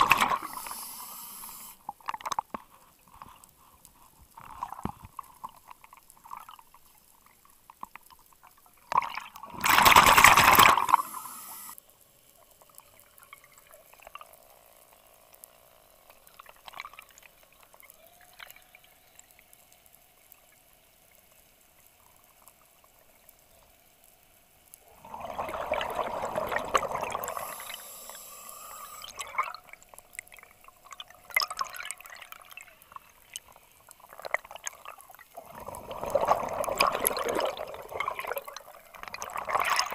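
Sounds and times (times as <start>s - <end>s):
quiet water noise: 0.0s - 39.9s
exhaled bubbles rushing: 9.0s - 11.2s, 24.9s - 27.8s, 28.8s - 32.6s, 34.0s - 39.9s.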